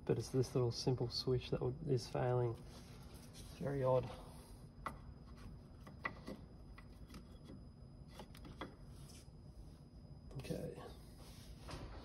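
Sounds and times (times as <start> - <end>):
steady low hum: 0.0 - 12.0
small rubbing sounds: 2.5 - 4.6.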